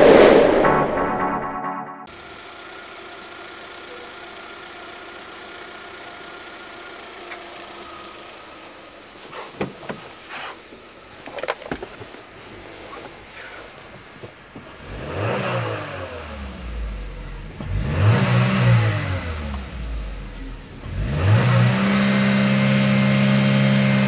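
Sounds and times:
car engine idling: 0:02.1 - 0:11.4, 0:19.1 - 0:21.0.

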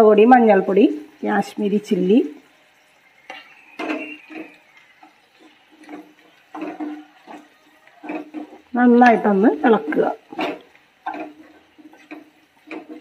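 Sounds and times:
utensils knocking on frying pan: 0:03.2 - 0:13.0.

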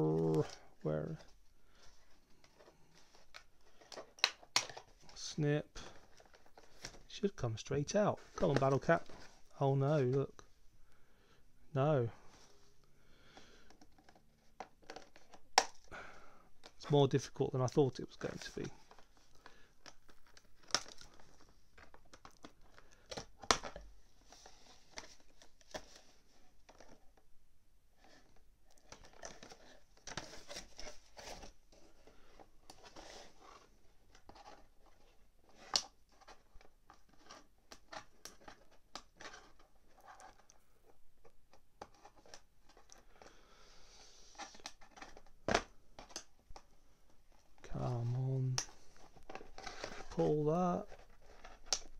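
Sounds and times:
cardboard handling: 0:28.0 - 0:51.9.

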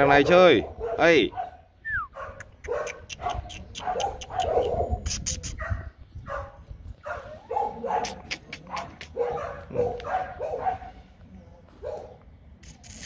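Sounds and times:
sharp clicks: 0:02.4 - 0:05.6.

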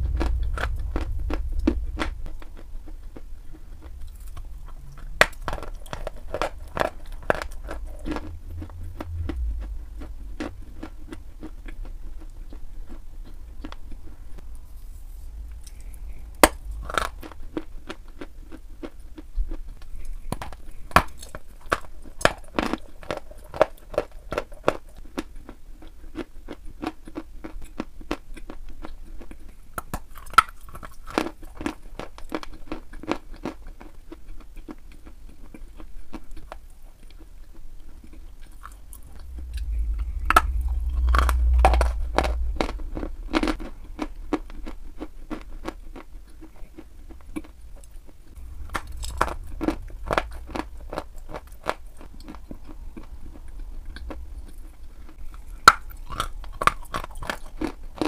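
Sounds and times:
faint low hum: 0:00.0 - 0:58.0.

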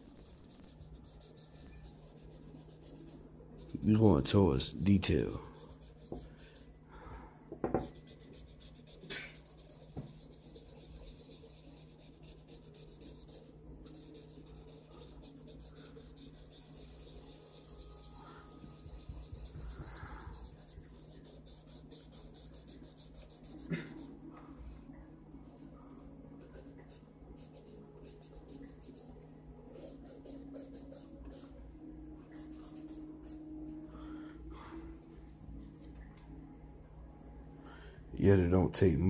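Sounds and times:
pencil scratching on paper: 0:00.0 - 0:04.3, 0:05.3 - 0:06.7, 0:07.6 - 0:24.1, 0:26.4 - 0:31.6, 0:32.2 - 0:33.4.

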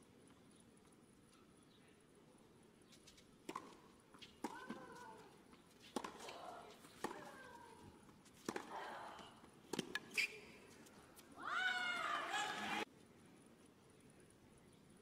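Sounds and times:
tennis racket striking ball: 0:05.8 - 0:07.4, 0:08.4 - 0:08.8, 0:09.7 - 0:10.2.

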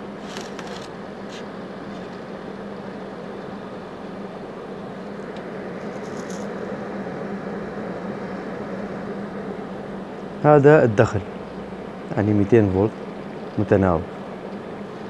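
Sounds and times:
welding machine humming: 0:00.0 - 0:15.0
light rattle of probes: 0:00.2 - 0:02.3, 0:05.4 - 0:06.6.

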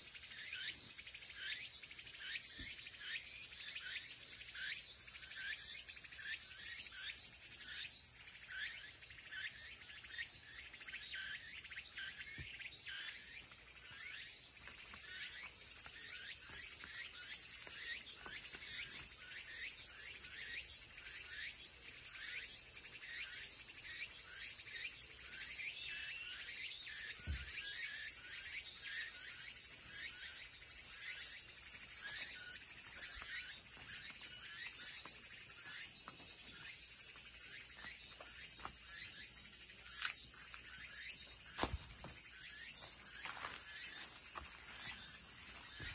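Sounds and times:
insects buzzing: 0:00.0 - 0:45.9.

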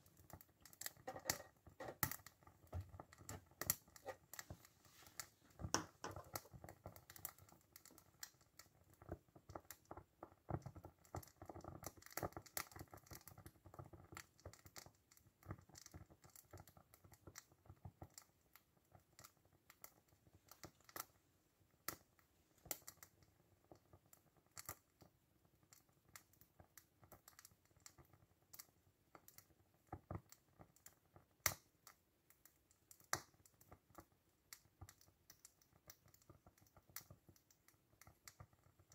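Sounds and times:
steam engine boiler clicks and crackles: 0:00.0 - 0:21.2, 0:21.8 - 0:38.9.

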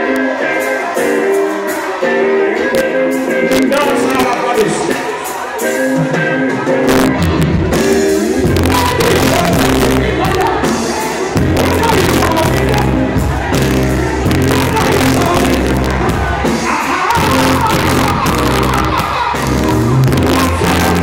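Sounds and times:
live reggae band: 0:00.0 - 0:21.0
person singing: 0:00.0 - 0:21.0
deep bass: 0:06.9 - 0:10.6, 0:11.4 - 0:16.4, 0:17.2 - 0:21.0.

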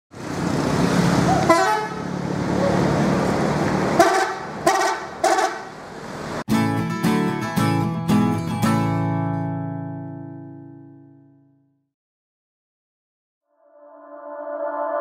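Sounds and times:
bus engine running: 0:00.1 - 0:09.0
strummed guitar music: 0:06.5 - 0:11.7.

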